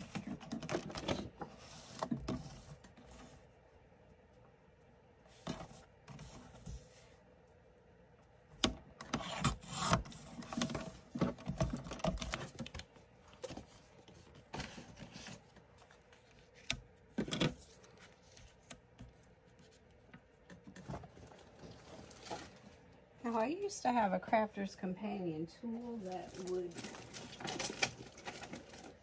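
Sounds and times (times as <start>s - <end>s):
paper rustling: 9.5s - 22.9s.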